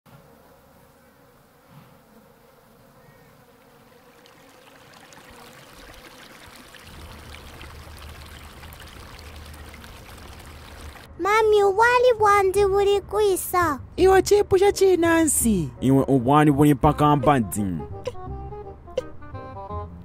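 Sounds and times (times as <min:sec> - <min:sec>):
flies buzzing: 0:00.1 - 0:11.2
running water: 0:03.8 - 0:11.1.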